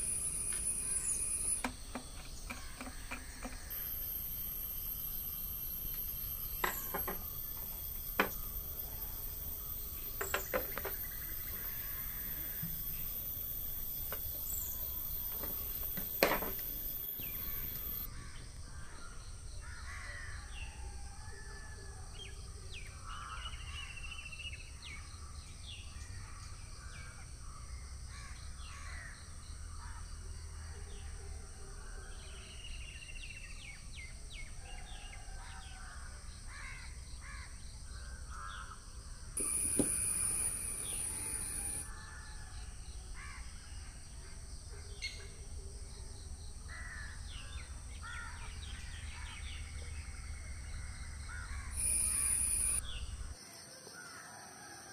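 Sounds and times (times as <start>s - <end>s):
birds calling: 0.0s - 18.2s, 39.4s - 41.9s, 51.2s - 53.2s
steady background noise: 39.2s - 41.9s, 49.6s - 53.4s
short high-pitched whine: 39.4s - 41.9s, 51.8s - 53.3s.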